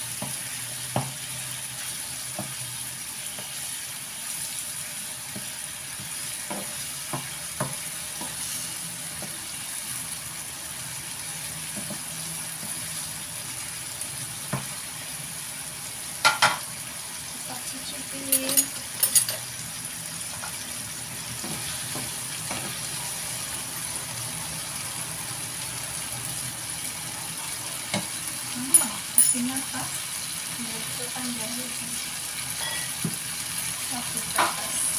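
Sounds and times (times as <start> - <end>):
food sizzling in a frying pan: 0.0 - 34.9.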